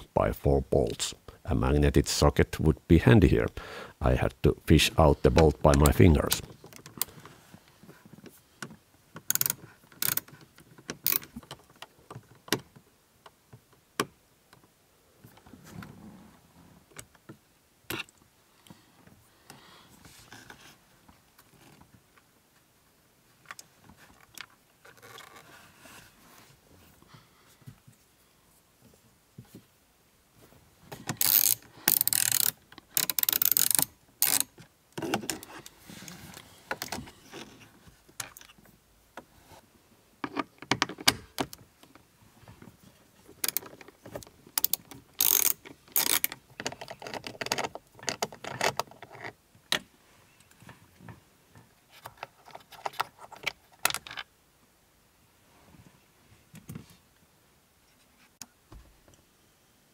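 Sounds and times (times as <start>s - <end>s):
socket wrench ratchet clicking: 9.3s - 10.2s, 11.0s - 11.3s, 31.2s - 34.5s, 44.6s - 46.4s.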